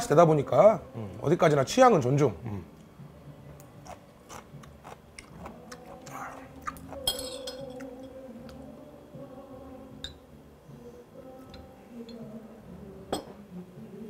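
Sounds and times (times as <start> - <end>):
man chewing crunchy food: 3.8 - 7.1.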